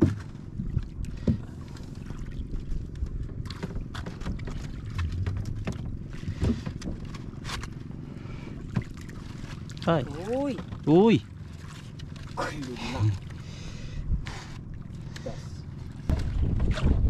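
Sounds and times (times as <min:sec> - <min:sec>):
wind rumble on microphone: 0:00.0 - 0:01.5, 0:02.1 - 0:07.4, 0:13.9 - 0:14.3, 0:16.0 - 0:17.0
wood knocking against boat: 0:00.0 - 0:08.0, 0:08.6 - 0:12.3
water slapping against hull: 0:00.0 - 0:17.0.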